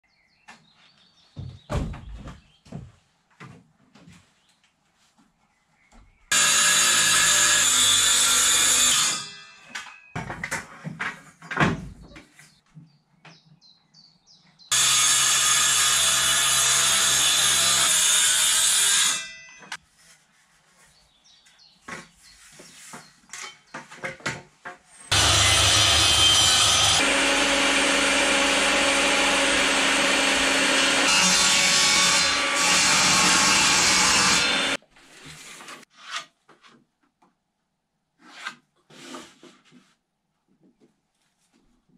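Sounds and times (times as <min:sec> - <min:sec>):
power tools cutting wood: 0:06.3 - 0:09.3, 0:14.7 - 0:19.3, 0:25.1 - 0:34.8
knocks and handling noises: 0:09.7 - 0:13.4, 0:19.6 - 0:24.9
table saw ripping board: 0:25.1 - 0:36.3.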